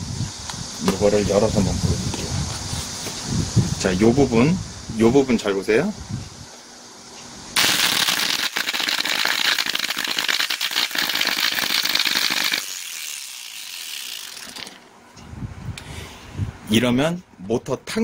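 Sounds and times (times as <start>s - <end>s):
motor brushes crackling and popping: 7.6s - 14.9s
angle grinder running weakly: 11.0s - 14.9s.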